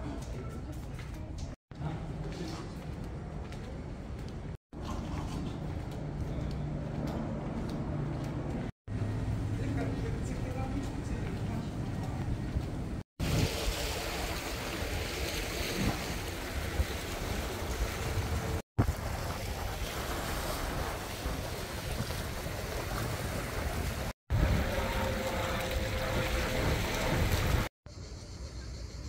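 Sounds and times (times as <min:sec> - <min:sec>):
waves washing over rocks: 0:13.2 - 0:27.7.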